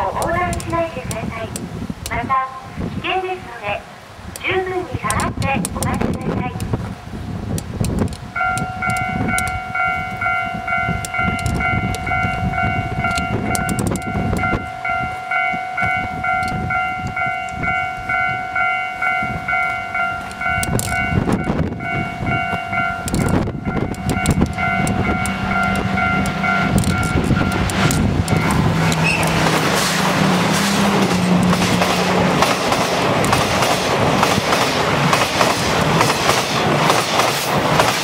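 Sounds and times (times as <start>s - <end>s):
train rumbling in tunnel: 0.0s - 38.0s
locomotive low steady note: 8.3s - 33.4s
pulsing electronic warning tone: 8.4s - 29.3s.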